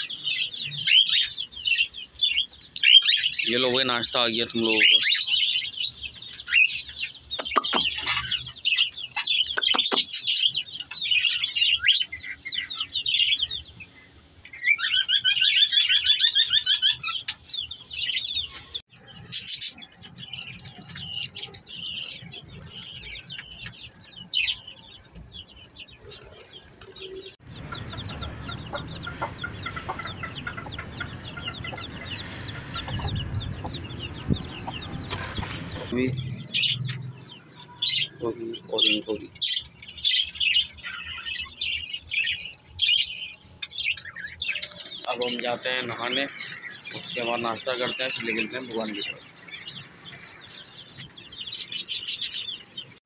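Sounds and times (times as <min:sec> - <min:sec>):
chicks and small birds chirping: 0:00.0 - 0:53.0
hen clucking: 0:06.3 - 0:11.4, 0:22.3 - 0:39.3.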